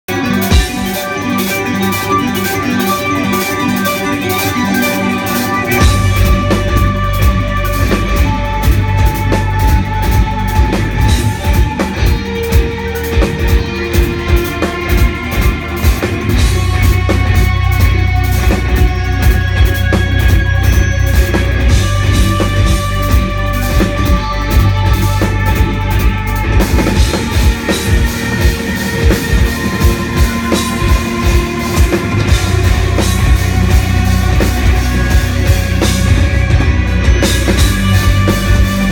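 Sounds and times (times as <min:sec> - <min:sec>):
drum kit: 0:00.1 - 0:38.9
electric guitars holding notes: 0:00.1 - 0:38.9.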